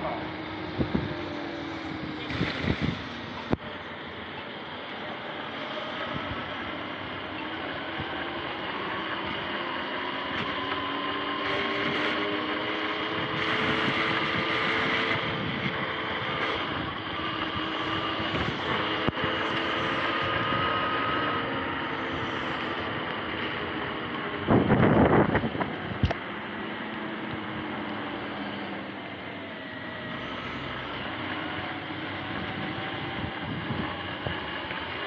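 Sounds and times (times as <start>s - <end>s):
wind on microphone: 0.0s - 3.8s, 5.8s - 8.4s, 11.3s - 26.2s, 30.3s - 35.0s
electric motor whining: 0.0s - 35.0s.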